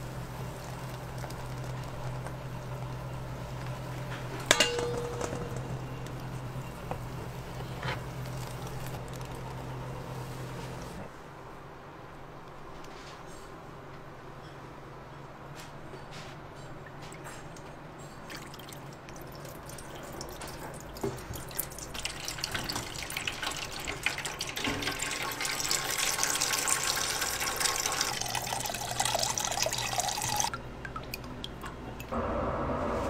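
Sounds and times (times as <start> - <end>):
dripping: 18.2 - 32.1
liquid trickling into pan: 18.4 - 32.1.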